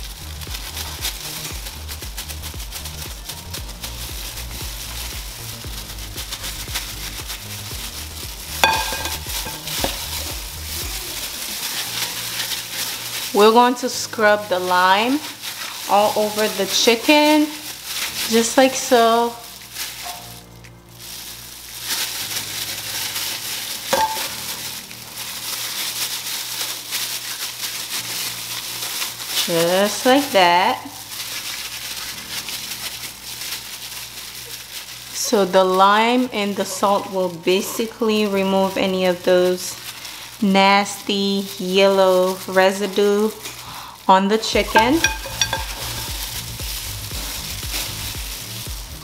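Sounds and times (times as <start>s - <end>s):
plastic gloves crinkling: 0.0s - 49.0s
wet gritty rubbing of chicken: 0.0s - 49.0s
knife clinking on glass bowl: 8.6s - 9.7s, 44.6s - 46.2s.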